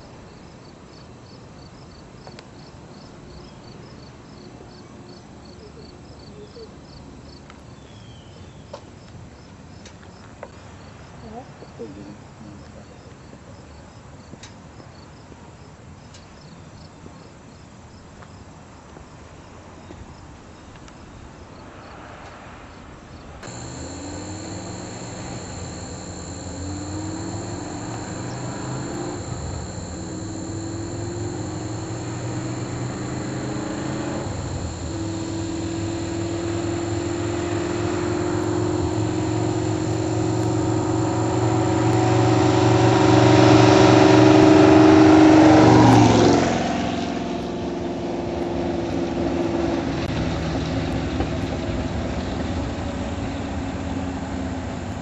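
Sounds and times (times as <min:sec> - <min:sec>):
crickets chirping: 0:23.4 - 0:42.6
engine revving: 0:23.4 - 0:44.9.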